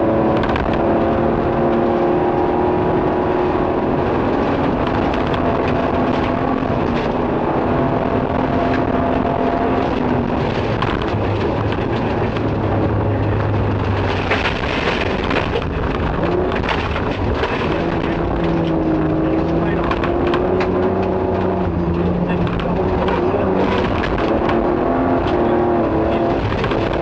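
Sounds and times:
car engine running hard: 0.0 - 27.0
tyre and road noise: 0.0 - 27.0
sharp clicks and rattles: 0.3 - 2.5, 4.0 - 27.0.

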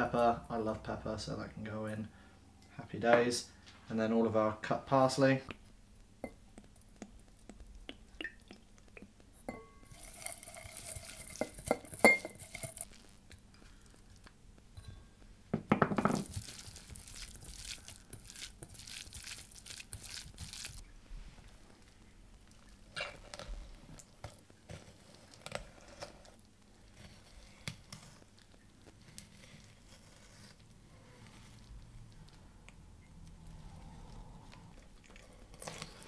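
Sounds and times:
stirring in metal bowl: 9.4 - 13.5
clinks in metal mixing bowl: 9.5 - 12.8
metal scrape in bowl: 9.9 - 13.0
knock on bowl: 15.5 - 16.2.

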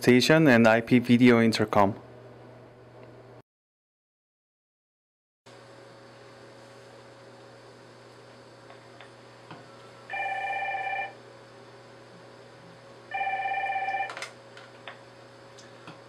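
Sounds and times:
electronic phone ringing: 10.1 - 11.2, 13.1 - 14.3.

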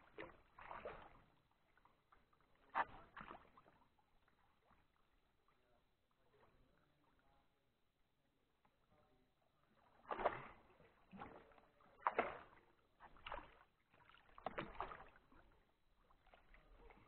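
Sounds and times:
paddle splashing in water: 0.0 - 5.6, 9.8 - 17.0.

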